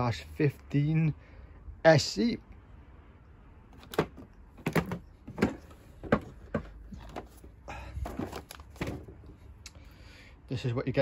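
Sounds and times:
rustling of contents: 3.7s - 9.5s.

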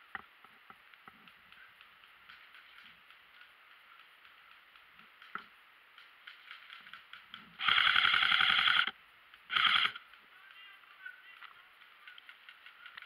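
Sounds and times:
airsoft rifle full-auto burst: 7.6s - 8.9s, 9.5s - 10.0s.

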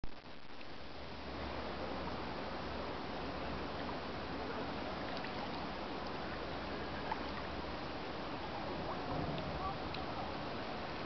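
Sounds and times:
water lapping: 3.2s - 11.0s.

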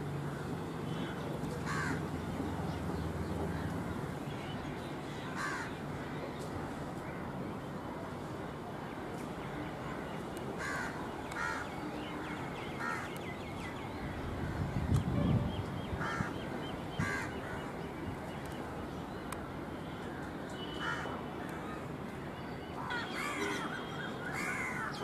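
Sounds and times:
crows cawing: 1.6s - 2.0s, 5.3s - 5.8s, 10.6s - 11.7s, 12.8s - 13.1s, 16.0s - 16.4s, 17.0s - 17.6s, 20.8s - 21.1s, 22.8s - 25.0s.

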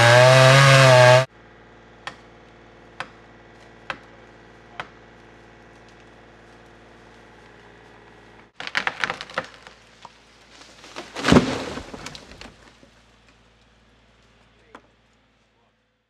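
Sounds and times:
sharp wooden cracks: 8.5s - 13.8s.

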